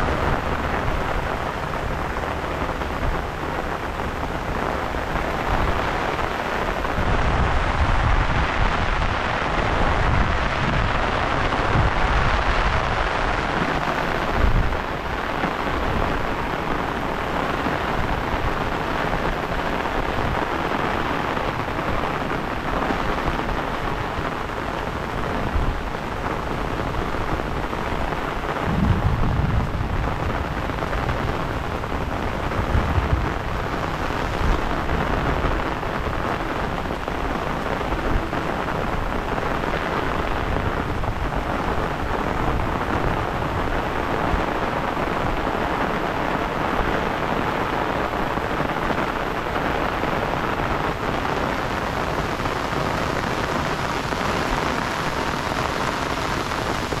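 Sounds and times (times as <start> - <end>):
low rumbling surges: 0.0 - 18.8, 23.6 - 39.2
heavy rain hissing: 0.0 - 57.0.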